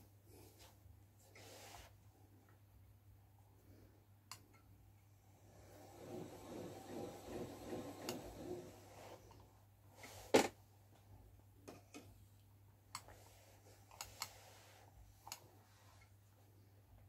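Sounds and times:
spinning wheel whirring: 0:05.6 - 0:08.8.

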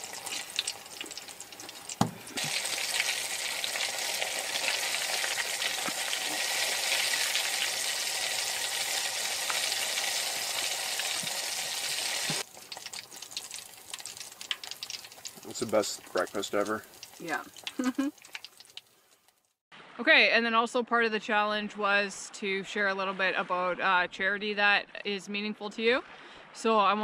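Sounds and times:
hot oil sizzling in frying pan: 0:00.0 - 0:19.5.

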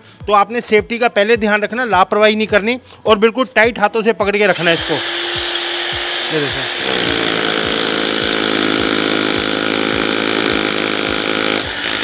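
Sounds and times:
rotary hammer drilling concrete: 0:04.5 - 0:12.0.

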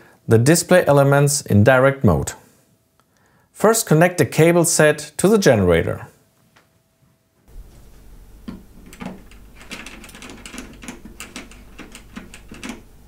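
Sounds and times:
low steady hum: 0:00.0 - 0:13.0
connector clicks and metallic rattles: 0:08.5 - 0:12.8.

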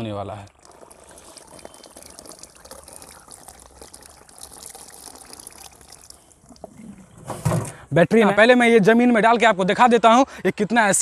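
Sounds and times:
liquid trickling into plastic tub: 0:00.0 - 0:07.8.

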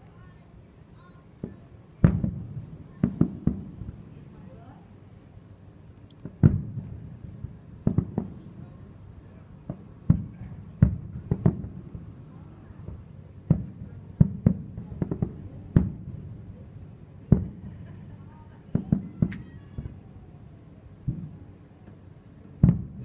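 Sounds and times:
distant firework booms: 0:01.4 - 0:04.2, 0:06.2 - 0:16.6, 0:17.2 - 0:20.1, 0:21.0 - 0:21.4, 0:22.6 - 0:23.0.

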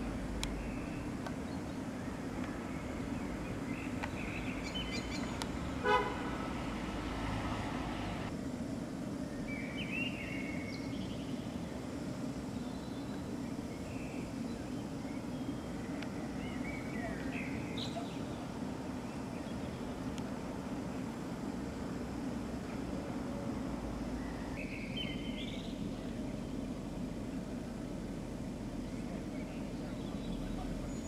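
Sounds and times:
short horn-like toot: 0:05.8 - 0:06.4.

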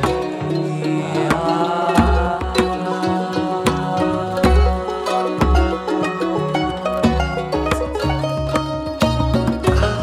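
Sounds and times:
plucked banjo picking: 0:00.0 - 0:10.0
plucked strings: 0:00.0 - 0:10.0.

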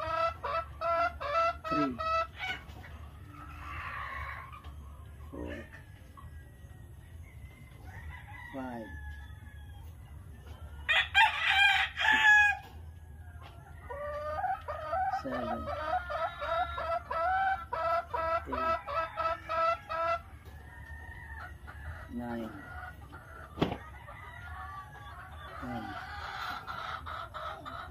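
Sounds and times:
chicken clucking: 0:00.0 - 0:27.9
rooster crowing: 0:07.7 - 0:09.9, 0:10.9 - 0:12.7.

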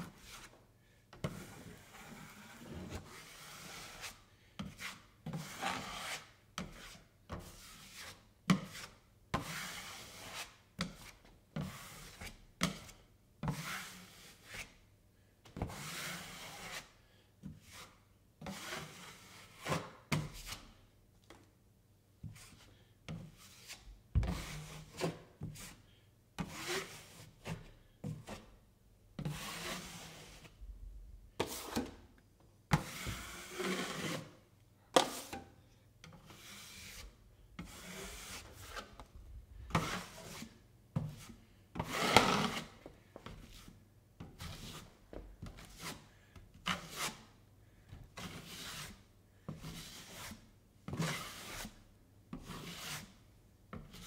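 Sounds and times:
taping knife scraping compound: 0:01.3 - 0:14.8, 0:26.4 - 0:28.5, 0:32.7 - 0:34.4, 0:36.1 - 0:39.0, 0:39.7 - 0:43.8, 0:45.6 - 0:47.4, 0:51.0 - 0:53.2.

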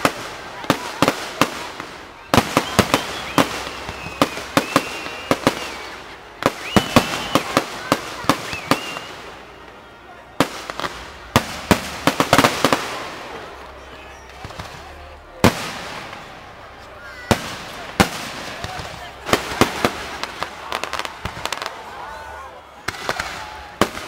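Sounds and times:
fireworks bangs and crackles: 0:00.0 - 0:24.0
high wavering whistles: 0:02.0 - 0:09.4.

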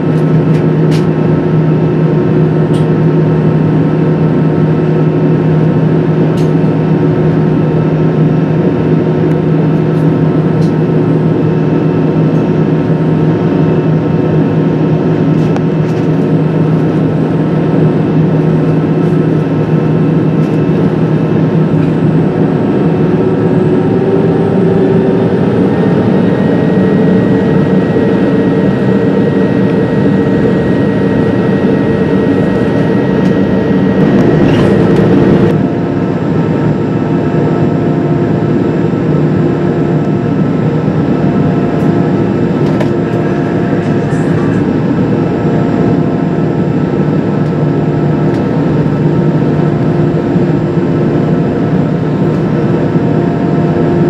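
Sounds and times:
jet engines humming in cabin: 0:00.0 - 0:54.0
engine whining tones: 0:16.6 - 0:48.8.

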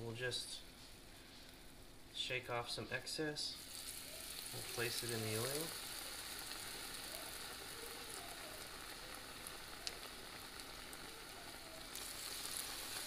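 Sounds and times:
fish sizzling in hot oil: 0:03.6 - 0:13.0.

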